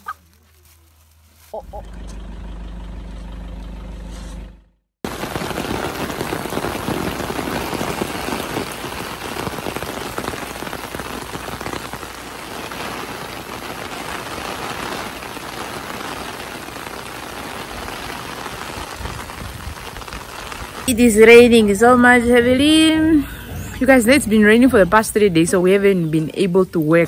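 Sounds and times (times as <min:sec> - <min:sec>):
heavy rain pouring: 0:05.0 - 0:25.9.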